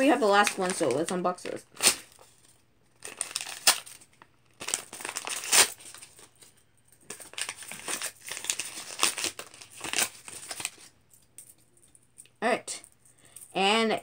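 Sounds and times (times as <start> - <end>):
paper tearing and crumpling: 3.0 - 4.0, 4.6 - 6.1, 7.2 - 10.8.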